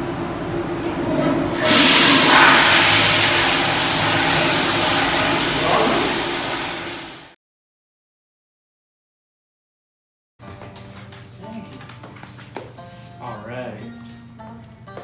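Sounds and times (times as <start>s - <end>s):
toilet flushing: 0.0s - 7.4s.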